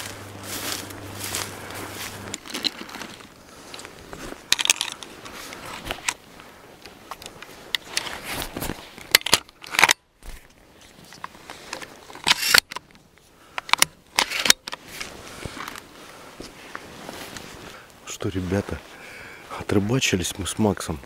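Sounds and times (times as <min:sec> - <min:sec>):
dry material rustling and crackling: 0:00.0 - 0:09.0
low steady hum: 0:00.0 - 0:21.0.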